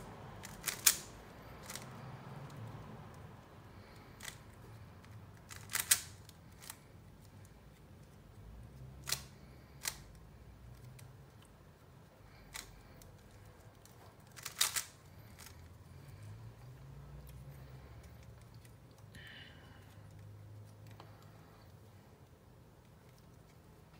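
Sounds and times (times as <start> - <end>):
puzzle cube layers clicking: 0.4 - 1.9, 5.5 - 6.8, 12.5 - 15.6.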